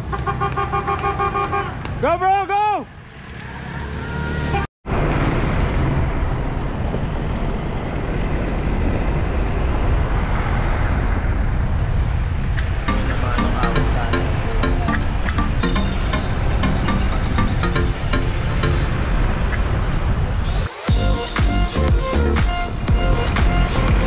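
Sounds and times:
car road and wind noise: 0.0s - 24.0s
music: 12.9s - 18.9s, 20.5s - 24.0s.

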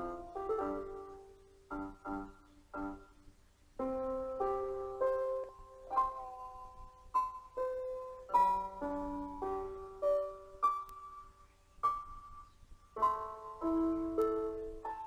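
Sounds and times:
slow piano melody: 0.0s - 15.0s.

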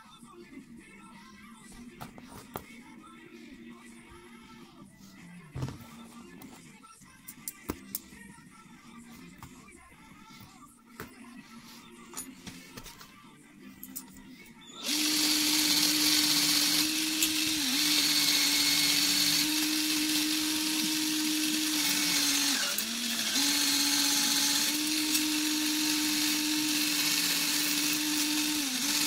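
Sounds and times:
cordless drill spinning buffing mop: 14.8s - 29.0s.

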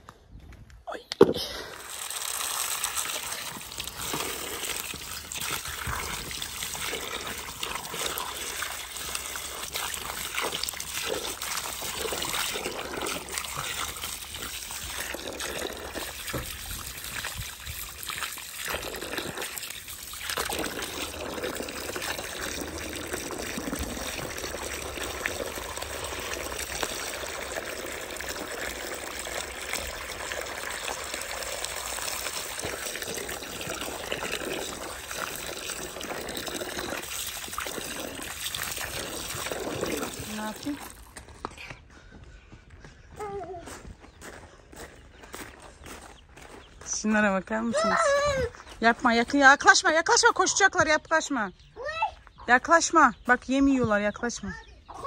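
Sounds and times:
running water splashing: 1.6s - 41.2s.

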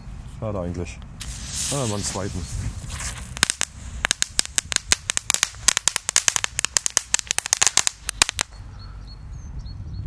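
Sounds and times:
firecracker crackling pops: 1.2s - 8.6s.

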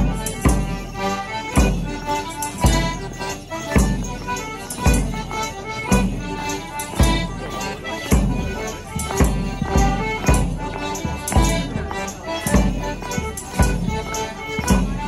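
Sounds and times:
drum beat: 0.0s - 3.1s, 3.8s - 5.2s, 5.9s - 6.4s, 8.1s - 15.0s
bells jingling: 0.0s - 15.0s
folk dance band playing: 0.0s - 15.0s.

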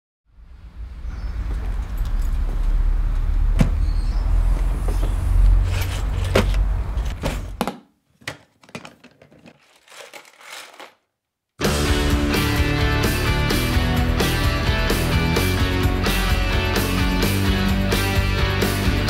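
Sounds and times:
low outdoor rumble: 0.3s - 7.3s
tools rattling in toolbox: 8.6s - 11.0s.

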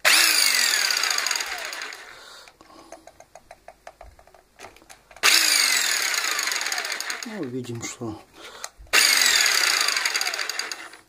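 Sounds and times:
jigsaw motor whine: 0.0s - 2.2s, 5.2s - 7.4s, 8.9s - 11.0s.

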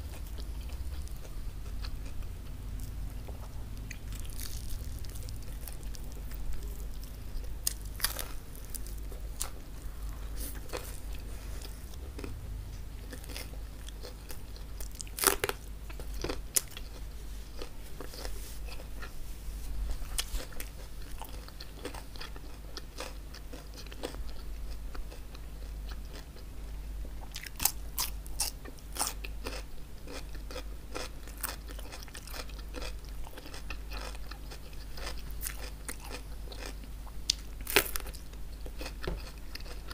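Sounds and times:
low hum: 0.0s - 22.0s
crust crackling: 0.0s - 22.6s, 31.3s - 39.9s
crunching bites and chewing: 0.1s - 17.0s, 20.0s - 26.4s, 27.2s - 39.9s.

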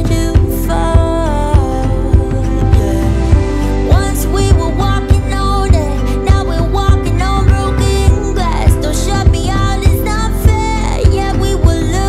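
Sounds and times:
person singing: 0.0s - 12.0s.

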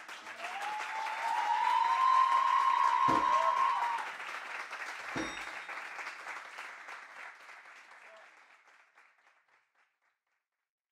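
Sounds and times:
audience applauding: 0.0s - 10.0s
low thump: 3.1s - 3.4s.

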